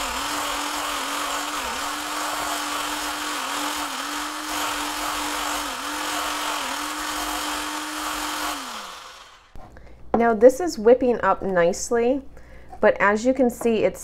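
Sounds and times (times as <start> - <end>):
electric whisk running: 0.0 - 9.6.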